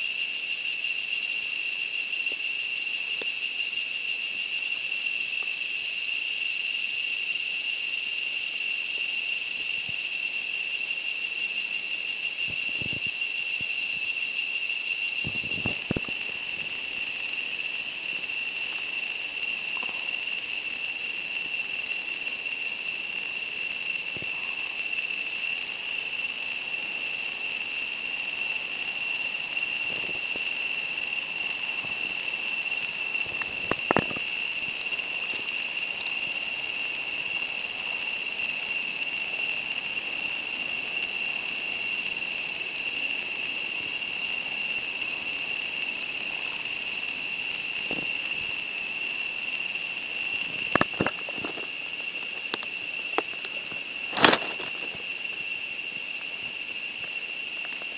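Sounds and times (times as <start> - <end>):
high-pitched insect chorus: 0.0 - 57.9.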